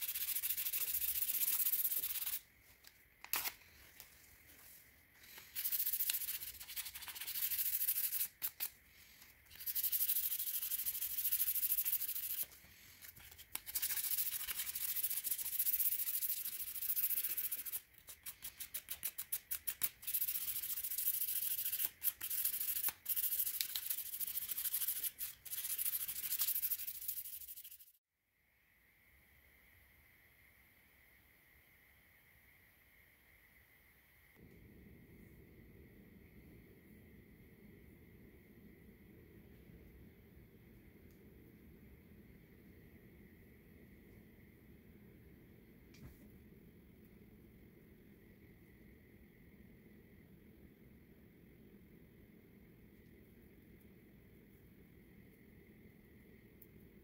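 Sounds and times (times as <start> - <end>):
sandpaper rubbing on wood: 0.0 - 2.4, 20.1 - 27.7.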